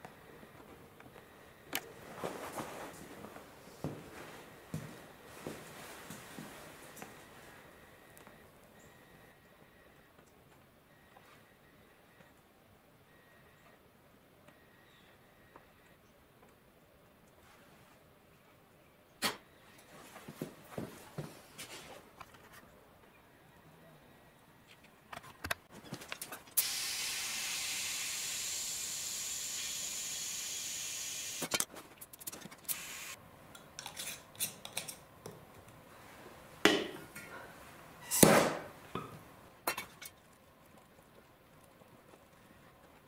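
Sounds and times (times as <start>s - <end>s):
compressed air hissing: 26.6s - 31.5s, 32.7s - 33.2s
tools clicking and knocking: 33.6s - 35.4s.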